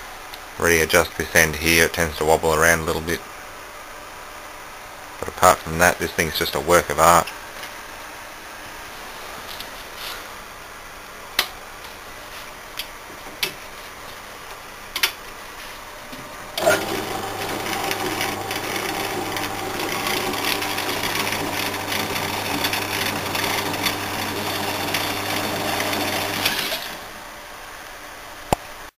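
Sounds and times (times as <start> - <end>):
power hacksaw running: 16.6 - 27.2.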